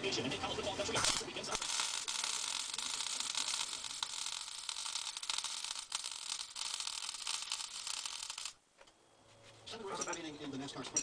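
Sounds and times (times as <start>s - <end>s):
welding arc crackling and hissing: 0.2s - 8.6s.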